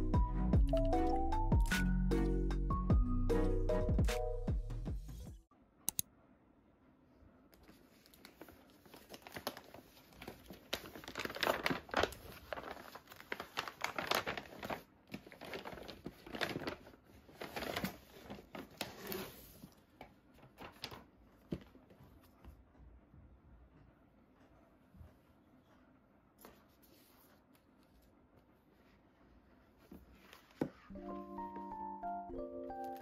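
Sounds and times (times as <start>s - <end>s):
paper being torn and crumpled: 8.2s - 16.8s.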